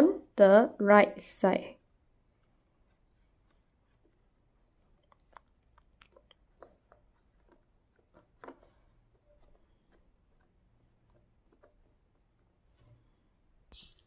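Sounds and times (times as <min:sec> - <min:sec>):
paper rustling and tapping: 0:05.0 - 0:10.5.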